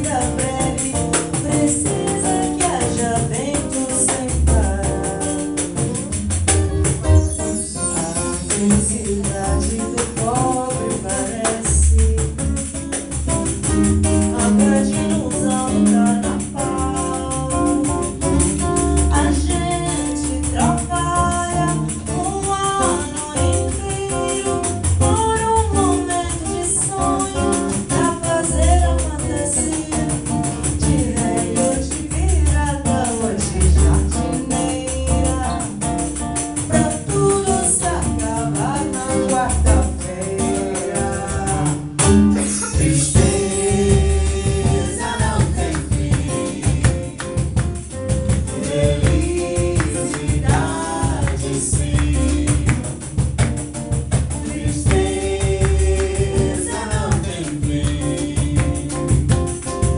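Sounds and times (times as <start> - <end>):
acoustic guitar: 0.0 - 59.9
hand percussion: 0.0 - 59.9
low bass notes: 3.0 - 10.4, 11.7 - 22.5, 28.4 - 59.9
person singing: 14.3 - 18.0, 36.7 - 47.4, 48.5 - 53.0, 54.4 - 59.2.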